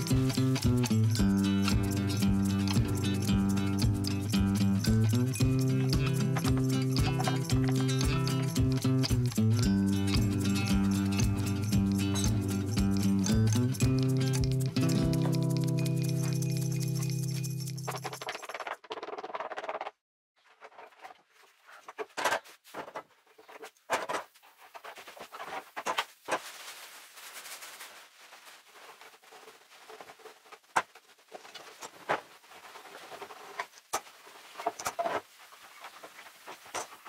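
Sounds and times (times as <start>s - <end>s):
plastic sheeting rustling: 24.3s - 37.0s.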